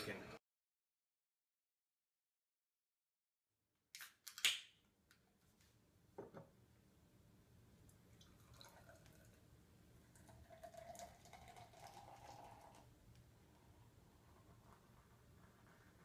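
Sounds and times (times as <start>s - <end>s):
beer pouring into glass: 8.2s - 9.4s, 10.1s - 12.9s.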